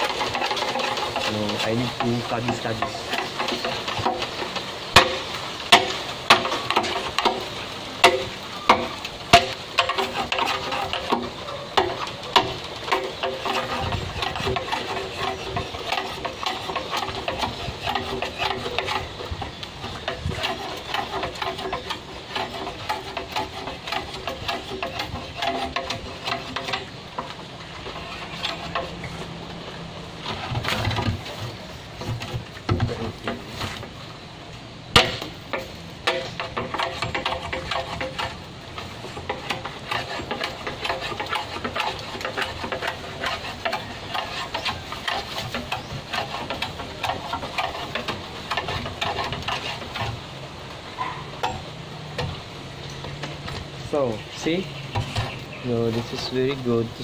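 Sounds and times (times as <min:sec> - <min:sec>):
blade chopping bamboo: 0:00.0 - 0:27.4, 0:34.9 - 0:50.2.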